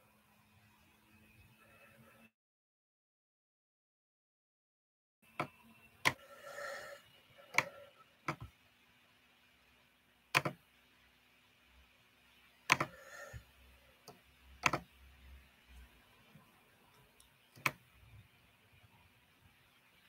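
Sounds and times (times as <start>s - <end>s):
computer key clicks: 10.4s - 10.6s, 12.7s - 12.9s, 14.6s - 14.8s.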